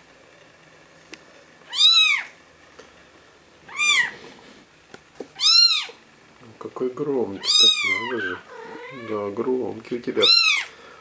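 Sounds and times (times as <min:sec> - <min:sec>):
kitten mewing: 0:01.7 - 0:02.4, 0:03.7 - 0:04.2, 0:05.4 - 0:06.0, 0:07.4 - 0:09.3, 0:10.2 - 0:10.7.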